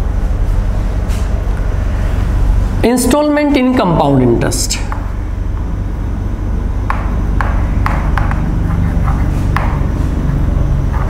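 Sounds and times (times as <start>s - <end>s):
steady low hum: 0.0s - 11.0s
chalk taps and strokes on board: 6.9s - 9.9s.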